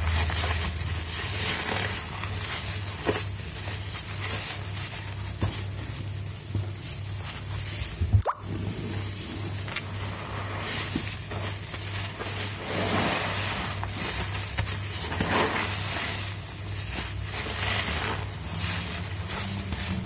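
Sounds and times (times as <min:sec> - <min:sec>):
steady low hum: 0:00.0 - 0:20.0
wet foam squelching: 0:06.9 - 0:20.0.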